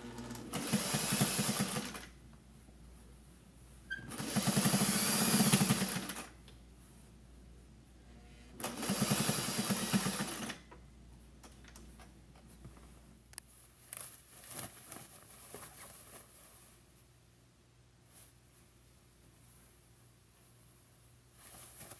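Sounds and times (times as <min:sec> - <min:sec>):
sewing machine stitching: 0:00.0 - 0:02.1, 0:03.9 - 0:06.3, 0:08.6 - 0:10.6.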